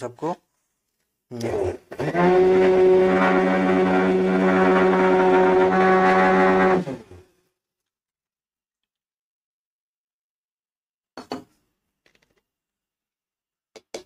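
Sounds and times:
mixer grinder motor humming: 1.9 - 7.2.

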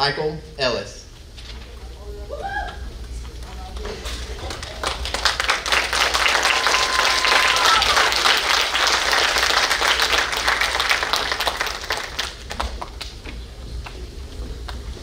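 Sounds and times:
audience applauding: 3.2 - 14.9.

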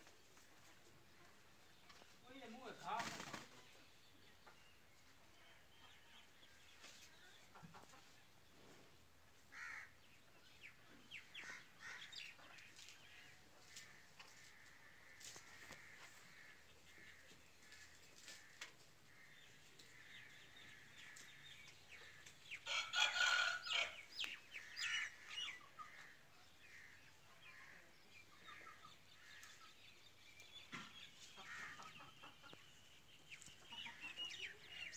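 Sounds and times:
chickens clucking: 6.8 - 8.8, 30.6 - 34.7.

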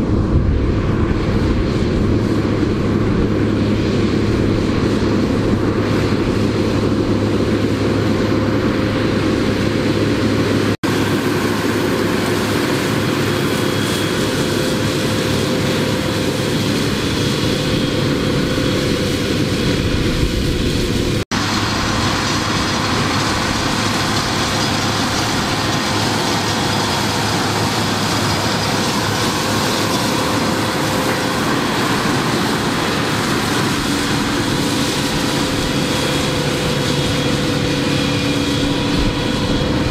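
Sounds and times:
tractor engine drone: 0.0 - 39.9
mulcher rotor chopping crop: 20.0 - 39.9.

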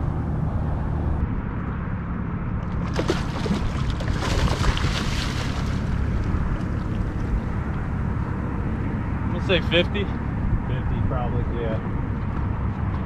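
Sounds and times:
steady low rumble: 0.0 - 13.0
fish splashing at water surface: 2.6 - 7.4.

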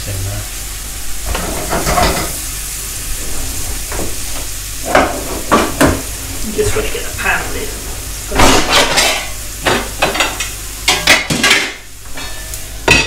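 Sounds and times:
onions sizzling in frying pan: 0.0 - 13.0
pots and pans clattering: 1.2 - 2.5, 3.1 - 13.0.

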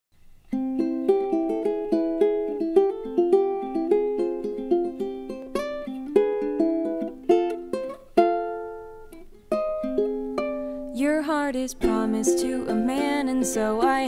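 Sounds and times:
ukulele plucking: 0.5 - 14.0
woman singing: 10.9 - 14.0.

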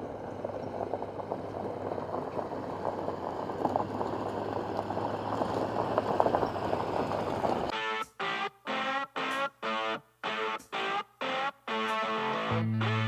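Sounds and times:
tyres crunching on gravel: 0.0 - 7.7
truck engine hum: 0.0 - 13.0.

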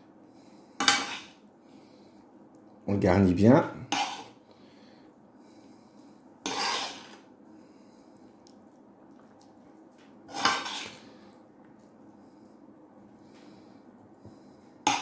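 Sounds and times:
metal spoon scraping a pan: 0.8 - 1.4, 3.9 - 4.4, 6.4 - 7.3, 10.3 - 11.2.

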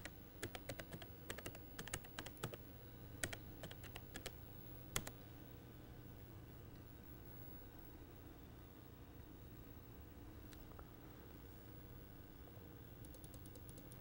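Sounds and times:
typing on computer keyboard: 0.0 - 2.6, 3.2 - 4.4, 13.0 - 14.0
faint steady hum: 0.0 - 14.0.

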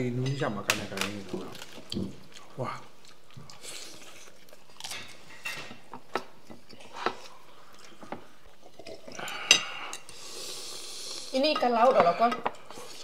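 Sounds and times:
chewing and mouth smacks: 1.4 - 5.4.

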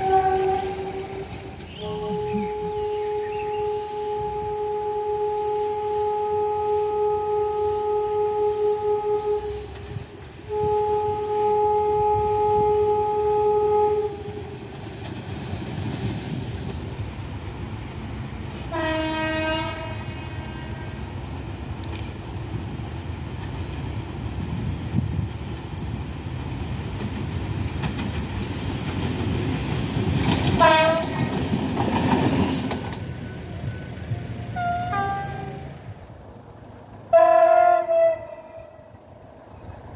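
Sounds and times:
train horn: 0.0 - 14.6, 18.5 - 21.0, 30.6 - 31.4, 34.6 - 35.8, 37.1 - 39.0
train rumbling on rails: 0.0 - 39.9.

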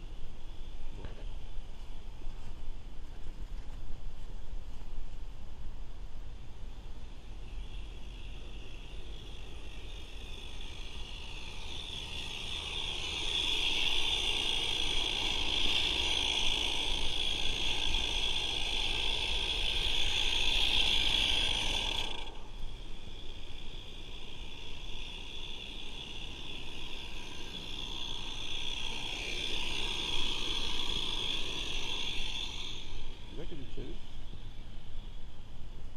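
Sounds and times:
steam hissing: 8.2 - 34.2.

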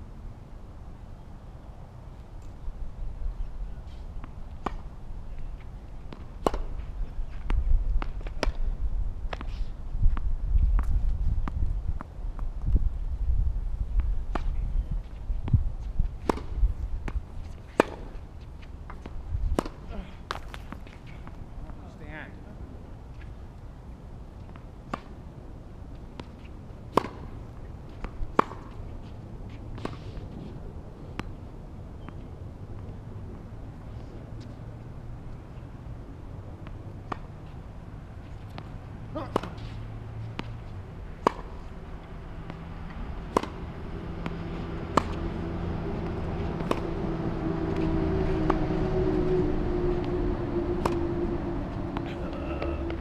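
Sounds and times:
wind rumbling on microphone: 0.0 - 21.8, 39.8 - 53.0
tennis balls struck and bouncing: 4.2 - 5.0, 5.6 - 9.5, 14.0 - 21.8, 24.4 - 33.5, 36.4 - 49.2, 49.8 - 53.0.

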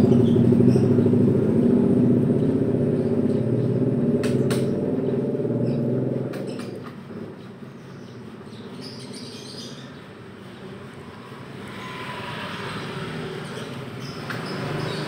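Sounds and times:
low background rumble: 0.0 - 6.3.

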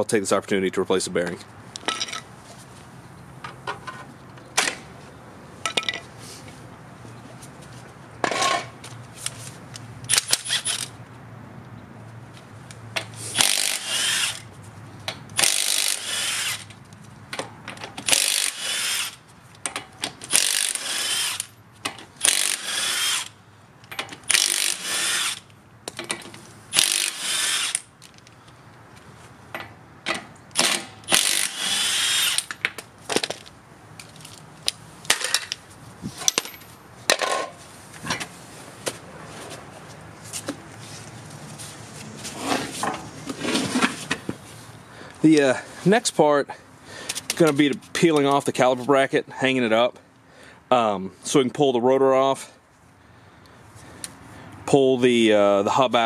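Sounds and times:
power tool spinning lug nuts: 10.1 - 11.0, 13.3 - 14.5, 15.4 - 16.8, 17.9 - 19.2, 20.2 - 23.4, 24.2 - 25.5, 26.7 - 27.9, 30.5 - 32.6.

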